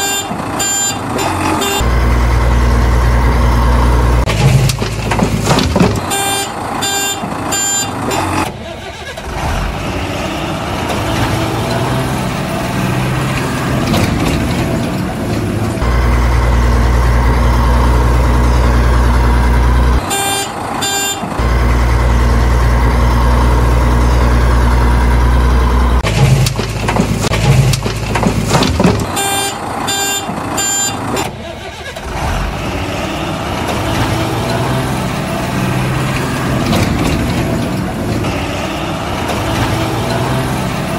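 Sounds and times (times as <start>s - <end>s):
reversing alarm beeping: 0.0s - 1.9s, 6.1s - 8.0s, 29.2s - 31.1s
heavy machinery engine running: 0.0s - 40.9s.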